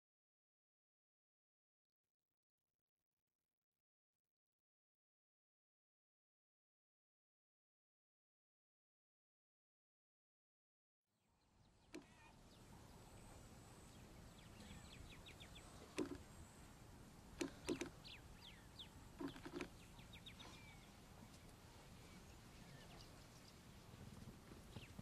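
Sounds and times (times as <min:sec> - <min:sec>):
faint bush ambience: 0:11.2 - 0:25.0
bird chirps: 0:11.4 - 0:16.8, 0:17.4 - 0:25.0
sharp knocks: 0:16.0 - 0:16.2.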